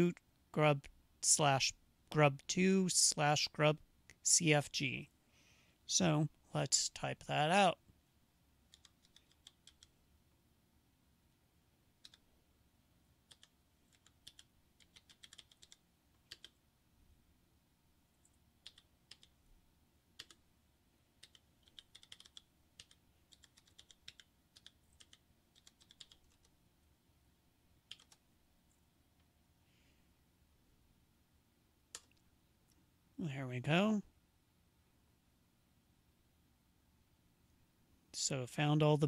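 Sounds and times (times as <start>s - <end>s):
keyboard typing: 8.7s - 10.0s, 12.0s - 12.3s, 13.2s - 16.6s, 18.2s - 19.4s, 20.2s - 20.4s, 21.2s - 26.6s, 27.8s - 28.2s.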